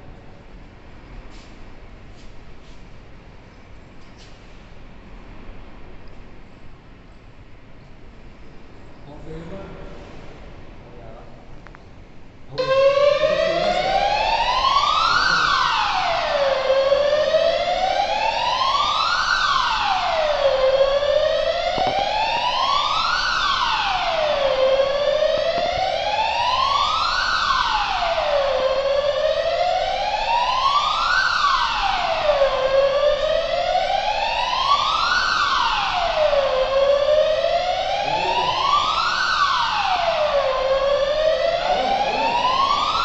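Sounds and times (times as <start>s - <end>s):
fire alarm siren wailing: 12.5s - 43.0s.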